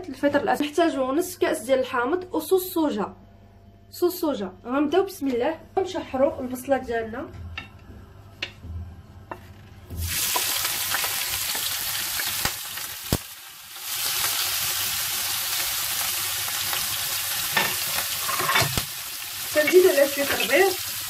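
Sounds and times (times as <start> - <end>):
onion sizzling in hot oil: 9.9 - 21.0.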